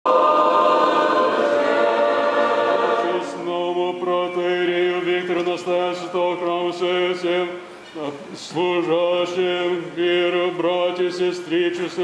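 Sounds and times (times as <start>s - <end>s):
choir singing a cappella: 0.1s - 7.3s.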